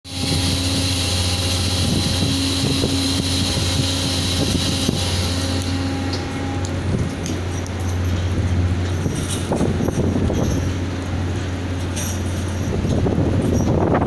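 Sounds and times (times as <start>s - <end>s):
low machinery drone: 0.0s - 14.0s
wind hiss on microphone: 0.1s - 7.3s
higher hum: 0.1s - 12.9s.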